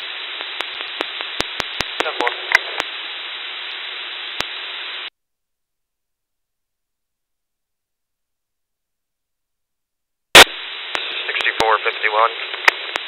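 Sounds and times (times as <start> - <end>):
radio static hiss: 0.0 - 5.1, 10.4 - 13.0
sharp static clicks: 0.0 - 5.1, 10.3 - 13.0
faint garbled radio voice fragments: 11.0 - 12.7.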